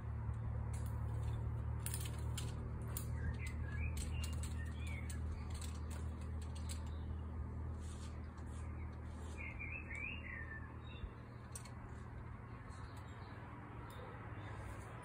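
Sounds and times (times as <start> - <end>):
bird chirps: 2.9 - 5.8, 8.5 - 11.5.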